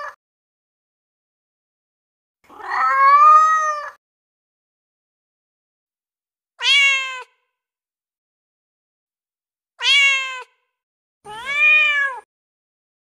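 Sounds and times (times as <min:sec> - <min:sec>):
cat meowing: 0:02.5 - 0:04.0, 0:06.6 - 0:07.4, 0:09.8 - 0:10.6, 0:11.3 - 0:12.3.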